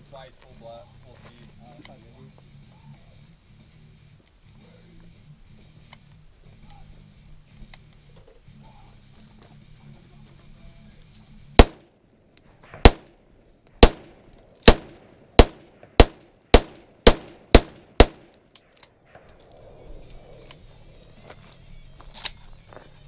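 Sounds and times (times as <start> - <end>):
rifle shots: 11.6 - 11.9, 12.6 - 13.2, 13.8 - 18.4.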